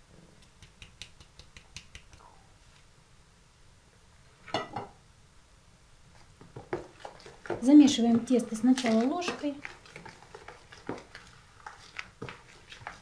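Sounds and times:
kitchenware clatter: 0:04.5 - 0:05.0.

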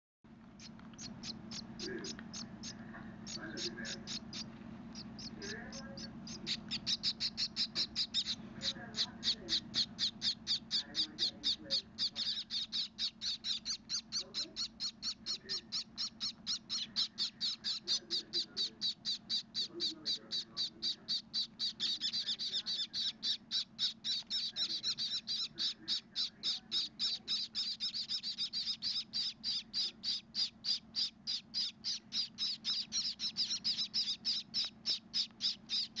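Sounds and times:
nestlings chirping: 0:00.3 - 0:36.0.

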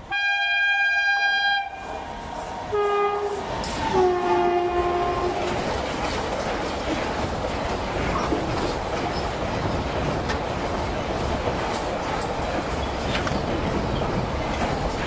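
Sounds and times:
locomotive horn blasts: 0:00.0 - 0:02.0, 0:02.7 - 0:05.6
freight train wheels clattering: 0:00.0 - 0:15.0.

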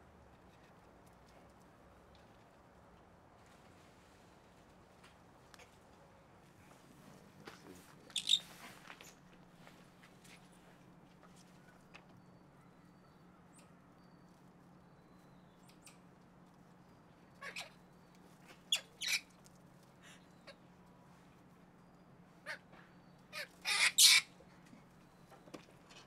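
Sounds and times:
monkeys giving shrill calls: 0:08.2 - 0:08.4, 0:23.3 - 0:24.3.

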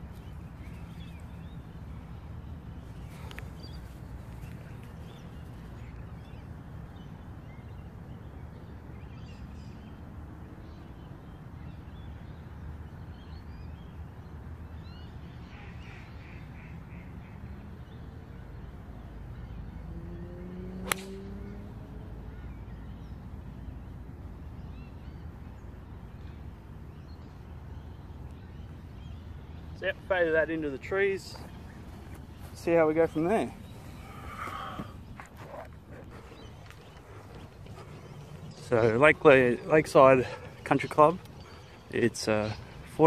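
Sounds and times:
golf club striking ball: 0:20.8 - 0:21.2
faint bird calls: 0:26.2 - 0:43.0.

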